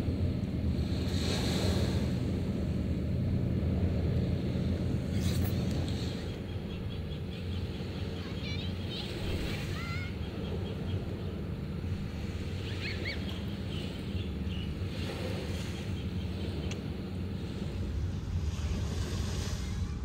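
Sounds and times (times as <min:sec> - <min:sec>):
surf: 0:00.0 - 0:20.0
wind: 0:00.0 - 0:20.0
short whistled calls: 0:12.6 - 0:13.8
bird chirps: 0:12.6 - 0:14.7.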